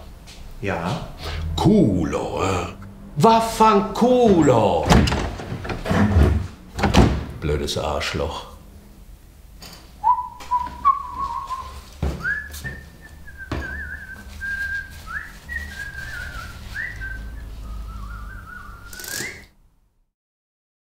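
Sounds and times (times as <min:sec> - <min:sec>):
man whistling a tune: 0:10.0 - 0:19.5.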